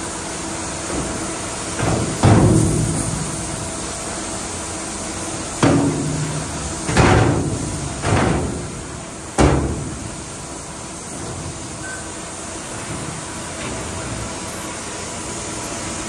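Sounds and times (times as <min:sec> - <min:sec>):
heavy knocks: 0:05.6 - 0:10.2.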